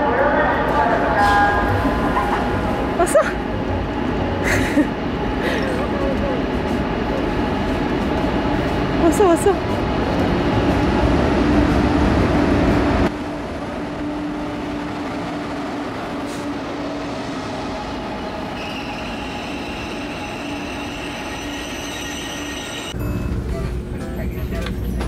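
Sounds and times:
train rumbling along platform: 0.0s - 25.0s
high brake squeal: 18.6s - 23.3s.

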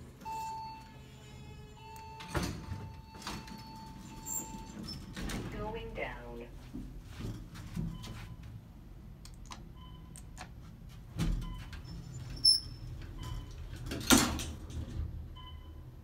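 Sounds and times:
elevator doors closing with bang: 0.0s - 6.0s, 11.1s - 16.0s
elevator car hum: 0.0s - 10.2s.

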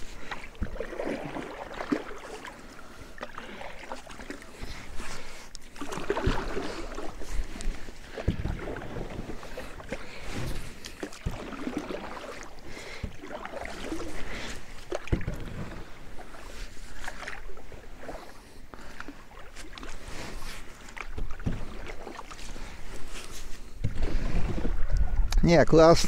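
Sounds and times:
paddle splashing in water: 0.0s - 25.3s
sharp knocks on wooden boat: 8.2s - 8.7s.

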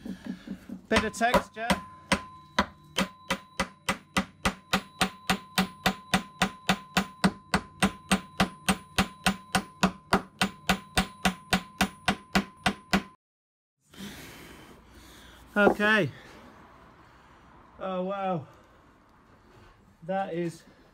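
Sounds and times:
hammer striking metal rivet: 0.9s - 13.2s.

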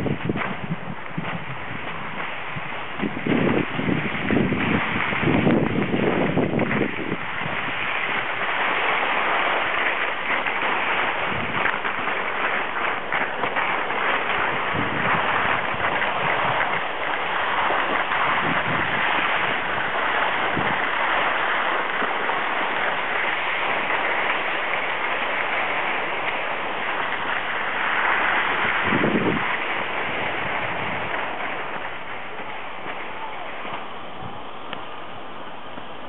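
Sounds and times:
skis scraping over snow: 0.0s - 36.0s.

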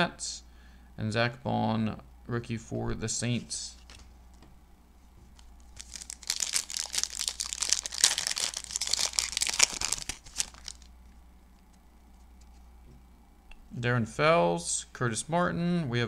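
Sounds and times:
foil wrapper crinkling and tearing: 5.7s - 10.9s.

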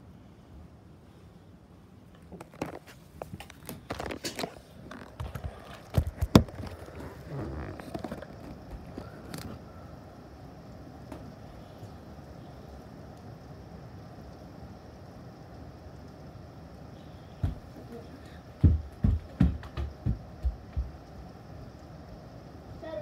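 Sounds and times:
heavy rain hissing: 4.5s - 18.8s, 21.2s - 23.0s
loud thumps: 18.6s - 21.0s.

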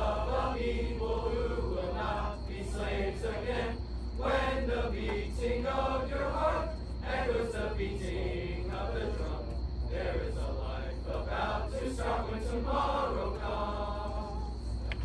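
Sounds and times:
group singing in unison: 0.0s - 15.0s
steady low hum: 0.0s - 15.0s.

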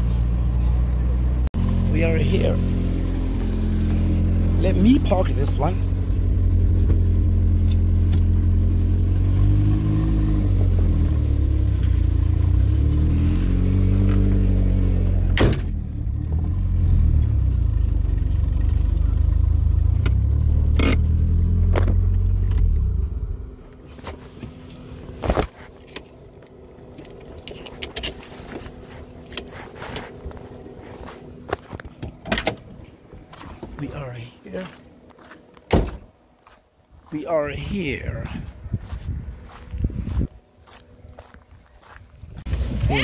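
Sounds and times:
car engine running: 0.0s - 43.0s
handling noises: 23.7s - 33.8s.

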